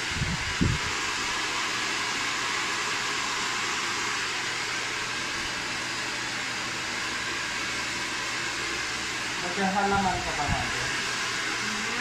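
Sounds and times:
hair dryer running: 0.0 - 12.0.

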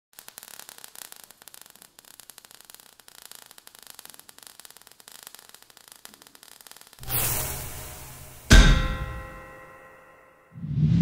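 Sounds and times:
falling sparks crackling: 0.1 - 9.8.

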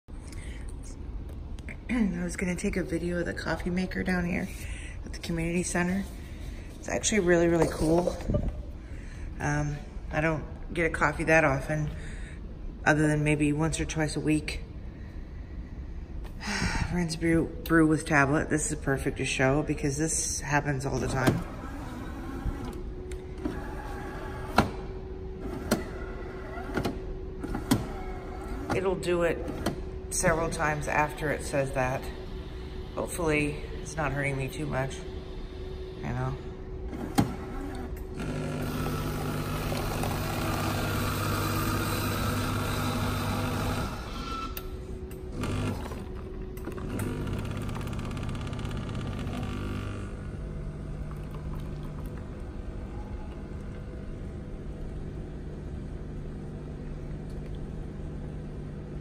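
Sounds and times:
coffee machine motor hum: 20.7 - 59.0
coffee pouring into paper cup: 51.0 - 52.4.

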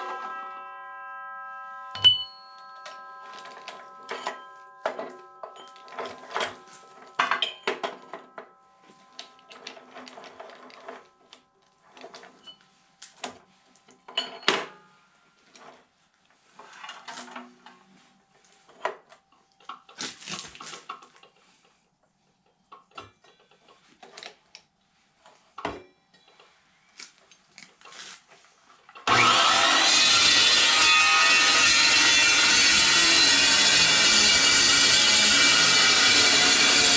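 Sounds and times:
steel clanking and scraping: 1.9 - 13.4
chop saw running: 29.0 - 36.9.

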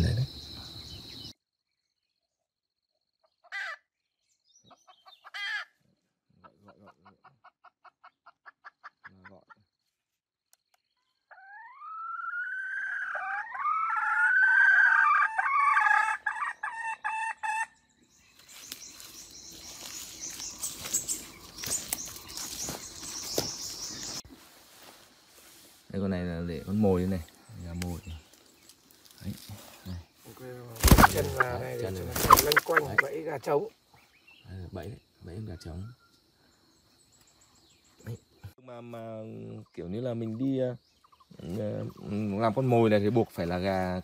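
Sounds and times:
recorded rooster crow: 11.3 - 17.7.

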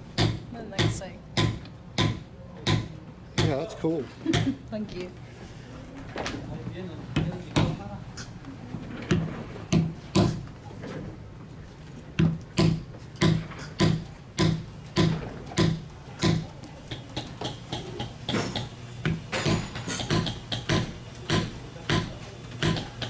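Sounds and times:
mallet tapping leather stamping tool: 12.2 - 23.0.

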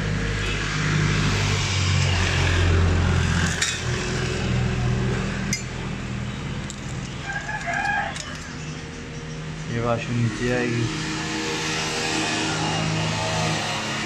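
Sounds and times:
metal parts clinking on steel dish: 6.7 - 8.6
rooster crowing: 7.2 - 8.8.

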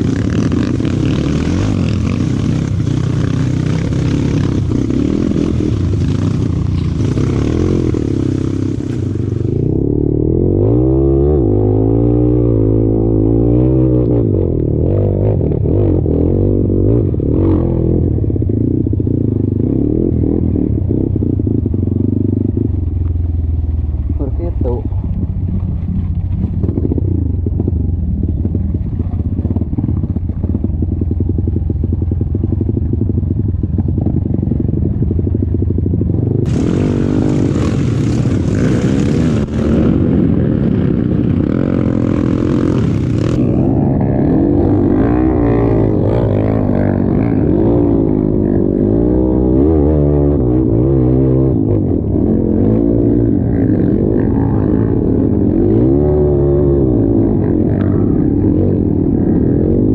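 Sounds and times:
dirt bike engine revving: 0.0 - 22.8, 36.2 - 59.9.

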